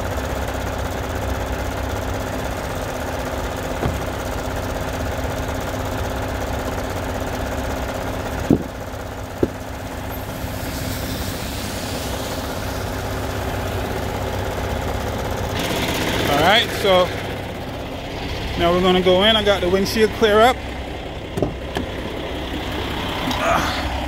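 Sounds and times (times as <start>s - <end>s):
truck diesel engine idling: 0.0s - 24.0s
sharp knocks: 3.8s - 4.2s, 8.5s - 8.8s, 21.4s - 21.9s.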